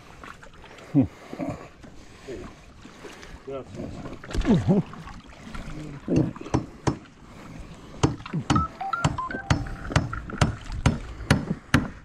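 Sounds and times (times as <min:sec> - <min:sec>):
hard knocks on wood: 0:08.0 - 0:12.0.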